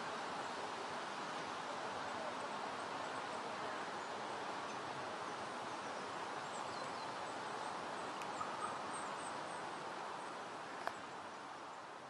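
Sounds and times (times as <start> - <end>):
outdoor background hiss: 0.0 - 12.0
faint high bird chirps: 8.2 - 9.3.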